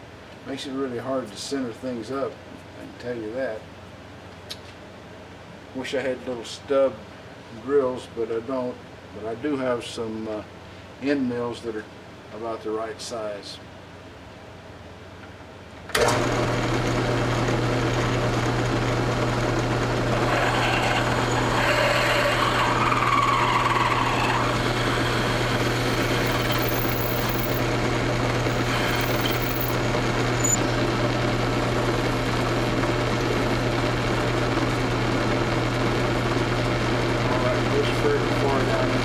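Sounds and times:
drilling machine humming: 16.0s - 39.0s.

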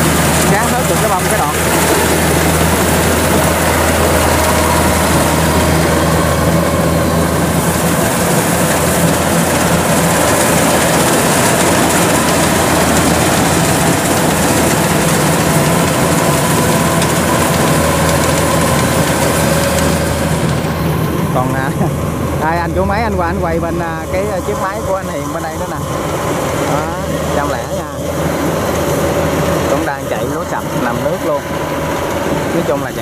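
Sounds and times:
combine harvester engine running: 0.0s - 33.0s.

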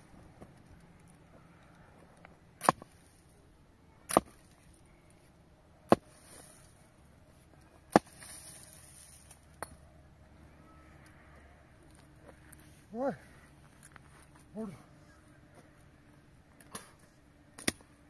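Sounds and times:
sharp chopping strikes: 4.1s - 4.4s, 7.9s - 8.3s.

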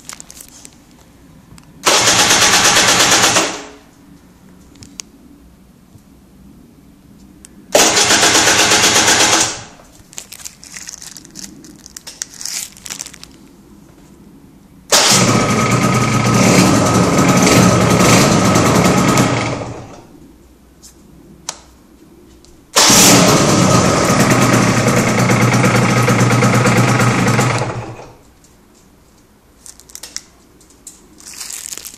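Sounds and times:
two-stroke engine starting: 1.8s - 3.8s, 7.8s - 9.8s, 14.9s - 20.1s, 22.8s - 28.2s.

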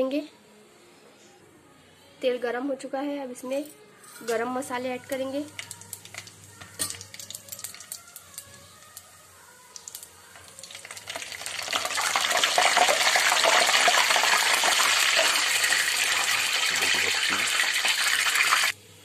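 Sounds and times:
spices sizzling in hot oil: 5.1s - 18.8s.

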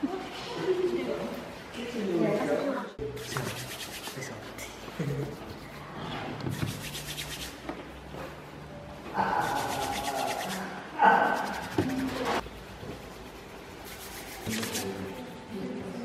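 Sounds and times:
palms rubbing dough: 3.2s - 7.7s, 9.2s - 15.6s.

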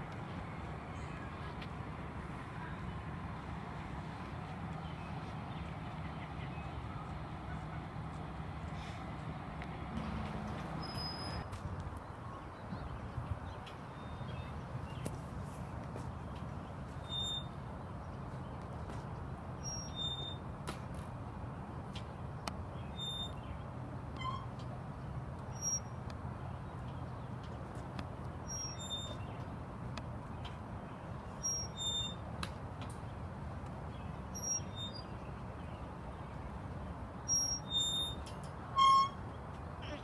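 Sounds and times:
swings squeaking: 9.9s - 11.6s, 16.9s - 17.6s, 19.6s - 20.4s, 22.9s - 23.5s, 24.1s - 24.8s, 25.5s - 26.0s, 28.4s - 29.5s, 31.3s - 32.3s, 34.3s - 35.2s, 37.3s - 40.0s.

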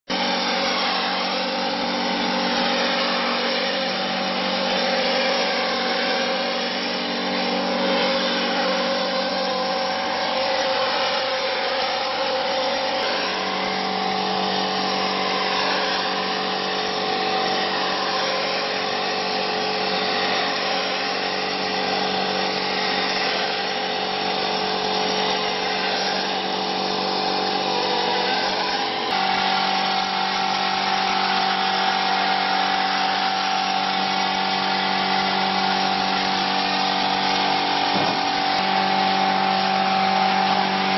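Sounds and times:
machine humming: 0.1s - 40.9s.

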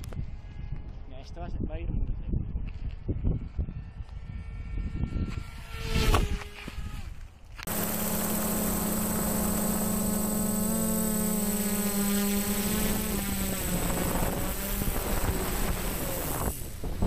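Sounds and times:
drone propellers humming: 7.7s - 17.0s
high electronic whine: 7.7s - 17.0s.

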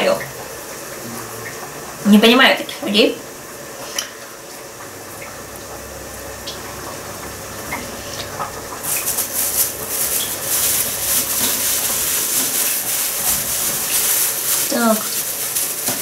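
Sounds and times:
plastic bag crinkling: 8.8s - 16.0s.

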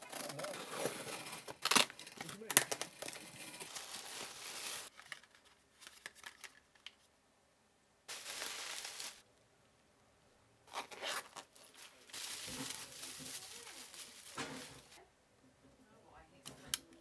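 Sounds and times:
plastic packaging crinkling: 0.0s - 6.6s, 8.1s - 9.2s, 10.7s - 15.0s.

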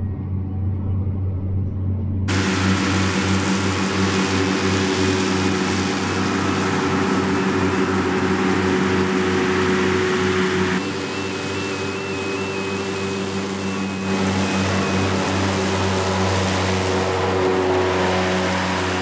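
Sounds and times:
mower discs whirring: 2.3s - 19.0s
tractor engine droning: 2.3s - 19.0s.

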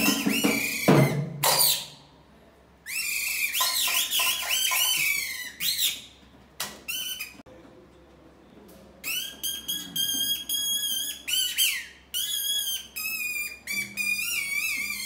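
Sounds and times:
reed whistle warbling chirps: 0.0s - 2.0s, 2.9s - 6.1s, 9.1s - 15.0s.

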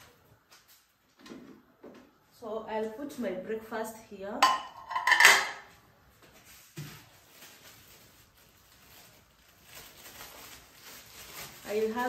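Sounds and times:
plastic bag rustling: 6.1s - 12.0s.

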